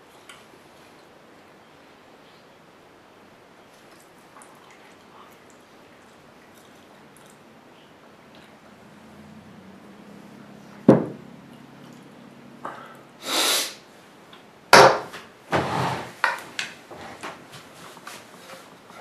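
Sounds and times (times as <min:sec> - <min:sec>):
wooden chair knocking and scraping: 0:10.9 - 0:11.2, 0:14.8 - 0:19.0
light knocks and shuffling: 0:16.3 - 0:19.0.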